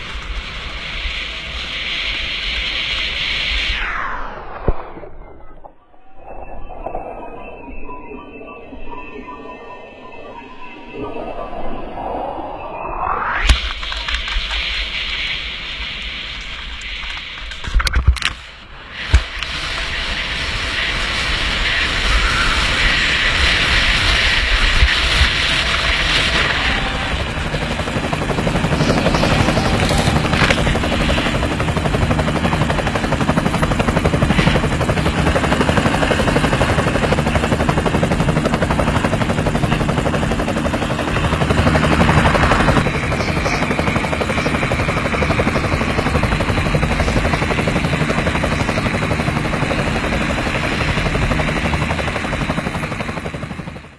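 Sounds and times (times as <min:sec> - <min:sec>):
skis hissing over snow: 0:13.9 - 0:17.4
helicopter rotor chopping: 0:19.0 - 0:53.9.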